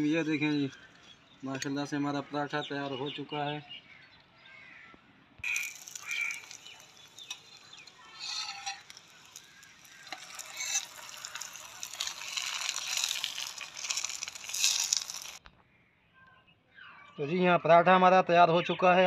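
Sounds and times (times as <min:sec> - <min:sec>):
flatbread sizzling on griddle: 0:05.4 - 0:15.4
spatula clicks and scrapes: 0:05.4 - 0:15.4.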